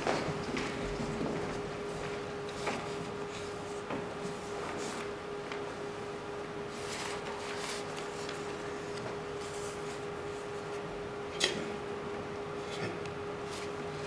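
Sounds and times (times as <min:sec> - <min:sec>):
steady hum: 0:00.0 - 0:14.0
paper rustling: 0:06.7 - 0:10.8.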